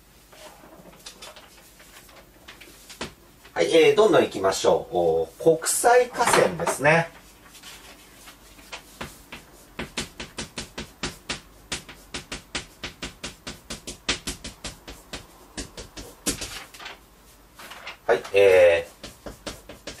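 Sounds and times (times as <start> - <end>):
chalk tapping on blackboard: 7.5 - 16.5, 18.4 - 20.0.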